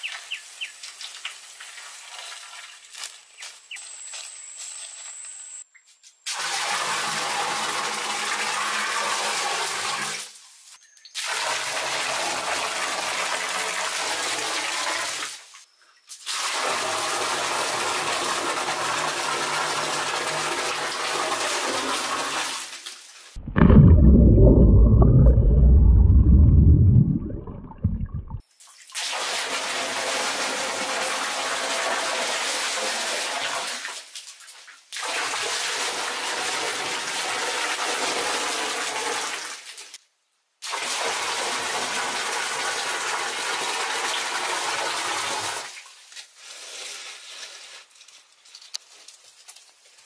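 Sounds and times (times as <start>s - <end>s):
water running and splashing: 20.9s - 28.9s
loud low rumble: 23.4s - 28.4s.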